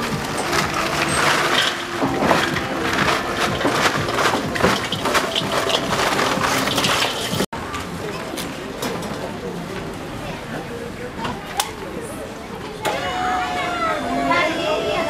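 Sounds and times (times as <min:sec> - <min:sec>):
charcoal clattering into grill: 0:00.0 - 0:07.5.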